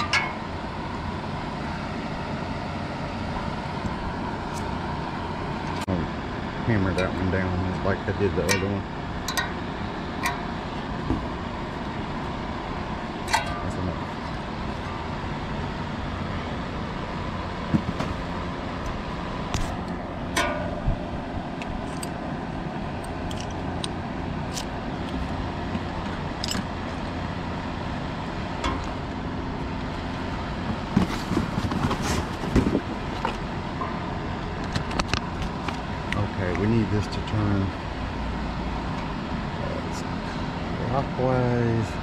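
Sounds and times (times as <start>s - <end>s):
steady background hum: 0.0s - 42.0s
clicks and taps of handled parts: 23.0s - 25.2s.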